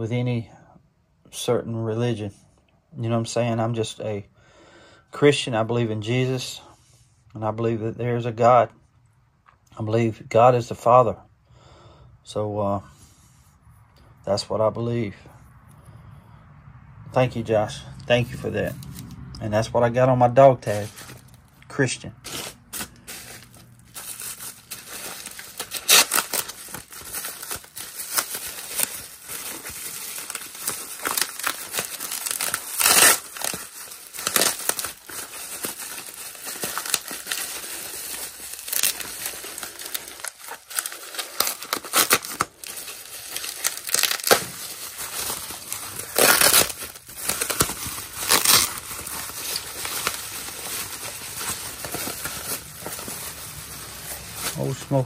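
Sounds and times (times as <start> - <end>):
tape ripping off: 22.3 - 52.9
bubble wrap crinkling: 22.3 - 55.0.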